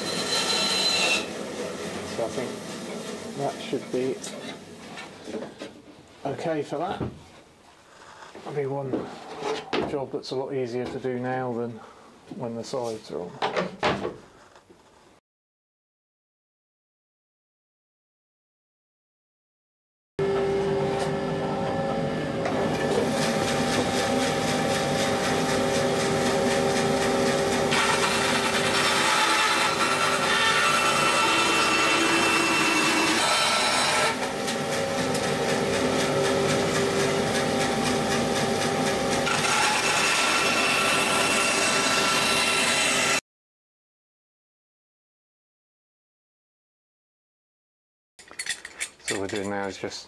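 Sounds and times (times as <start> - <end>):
bandsaw cutting wood: 0.0 - 4.2, 22.5 - 43.2.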